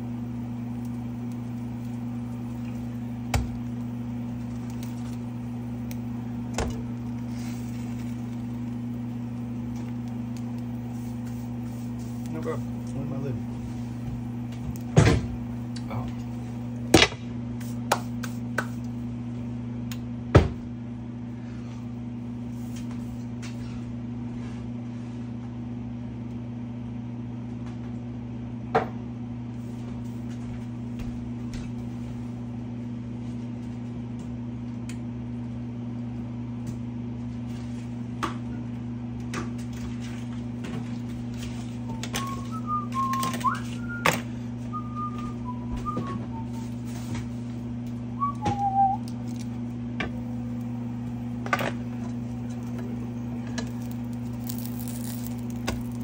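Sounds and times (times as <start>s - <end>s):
low electrical hum: 0.0s - 56.0s.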